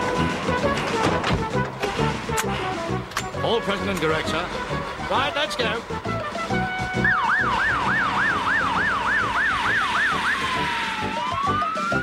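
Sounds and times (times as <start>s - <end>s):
fire engine siren: 6.3s - 12.0s.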